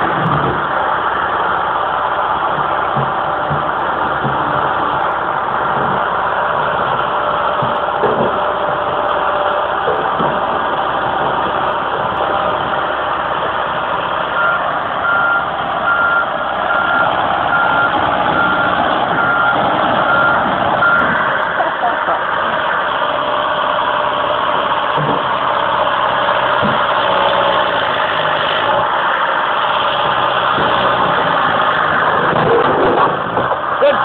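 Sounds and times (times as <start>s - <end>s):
excavator diesel engine running: 0.0s - 34.0s
travel alarm beeping: 14.4s - 21.2s.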